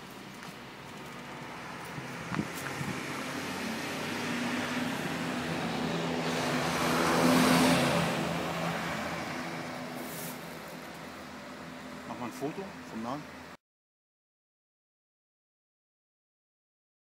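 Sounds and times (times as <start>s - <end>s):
car passing by: 1.2s - 12.7s.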